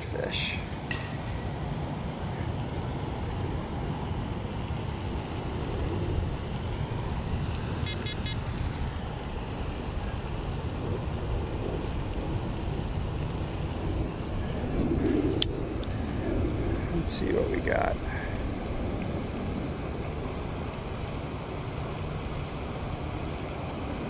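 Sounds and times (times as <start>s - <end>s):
quick high-pitched beeps: 7.8s - 8.4s
wind buffeting microphone: 8.4s - 24.0s.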